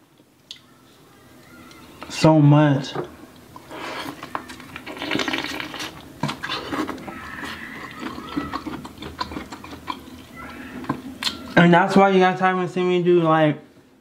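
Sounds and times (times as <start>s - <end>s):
wet chewing and lip-smacking: 3.3s - 11.6s.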